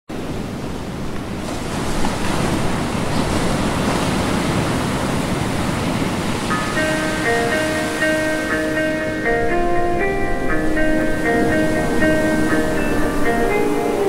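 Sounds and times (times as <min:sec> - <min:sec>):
waves breaking: 0:00.1 - 0:14.0
music notes: 0:06.5 - 0:14.0.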